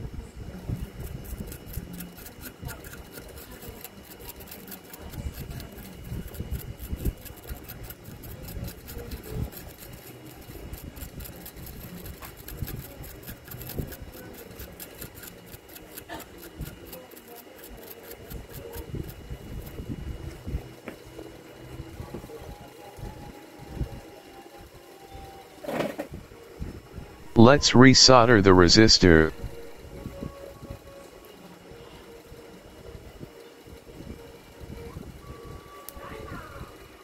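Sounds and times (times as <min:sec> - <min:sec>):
stiff brush scrubbing circuit board: 0:00.8 - 0:19.8.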